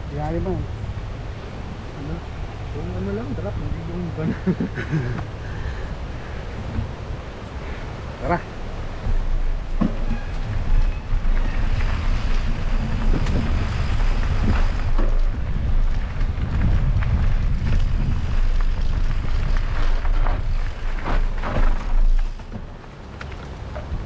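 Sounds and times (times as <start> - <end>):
wind buffeting microphone: 0.0 - 22.8
tyres rolling over rough ground: 0.0 - 24.0
bike clicks and rattles: 9.1 - 24.0.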